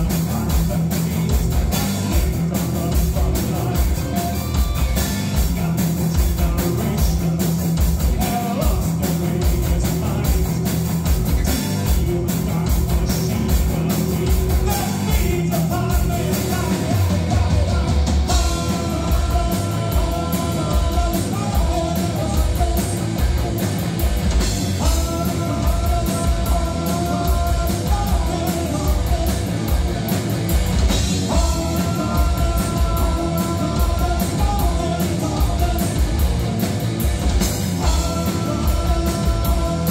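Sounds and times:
man singing: 0:00.0 - 0:23.8, 0:24.4 - 0:29.8, 0:30.9 - 0:36.3, 0:37.8 - 0:39.9
bass guitar: 0:00.0 - 0:39.9
drum kit: 0:00.0 - 0:39.9
electric guitar: 0:00.0 - 0:39.9.

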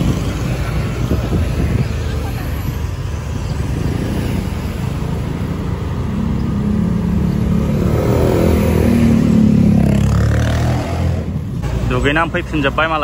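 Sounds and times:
wind rumble on microphone: 0:00.0 - 0:04.6.

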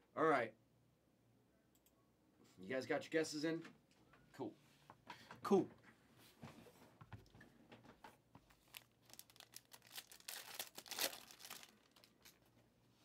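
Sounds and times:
plastic wrapper crinkling and tearing: 0:08.6 - 0:12.5.

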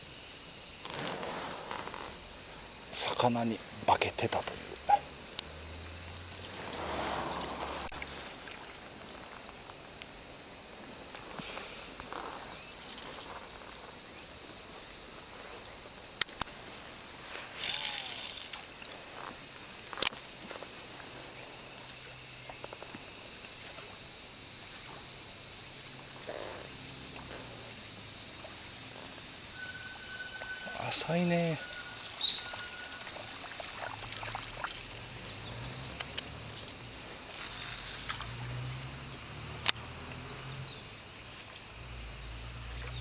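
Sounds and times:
insects chorus: 0:00.0 - 0:43.0.

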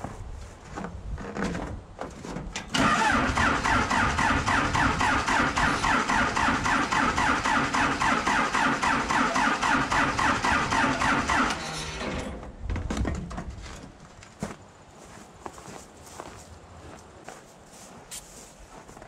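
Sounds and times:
diesel engine cranking on starter: 0:02.6 - 0:12.4.

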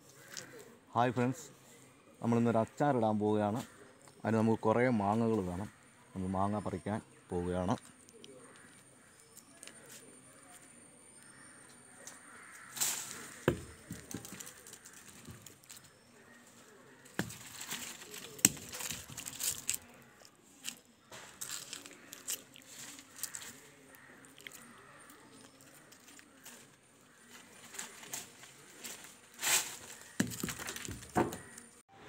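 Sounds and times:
twigs cracking: 0:00.1 - 0:00.7, 0:11.2 - 0:31.8
leaves rustling: 0:12.3 - 0:31.6
pole knocking on branches: 0:12.8 - 0:15.5, 0:29.6 - 0:31.5.

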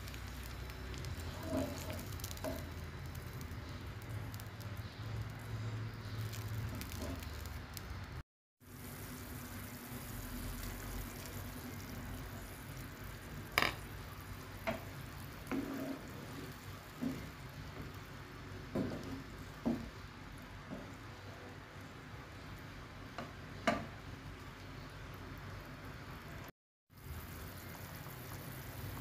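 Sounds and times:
liquid stirred in a pot: 0:00.1 - 0:07.5, 0:14.5 - 0:18.0.

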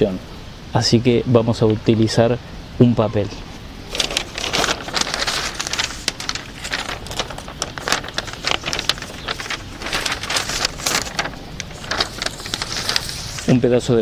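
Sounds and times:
paper rustling and crinkling: 0:03.8 - 0:14.0.

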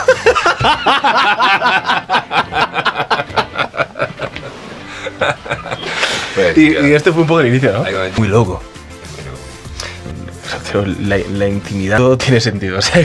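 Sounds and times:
hearty laughter: 0:00.0 - 0:06.6.

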